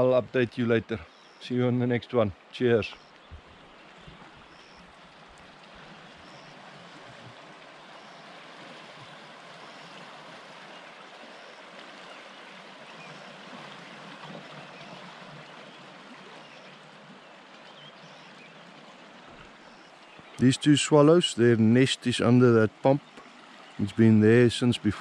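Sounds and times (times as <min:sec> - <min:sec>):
river floodwater rushing: 0:00.0 - 0:25.0
faint high chirp: 0:06.2 - 0:06.6.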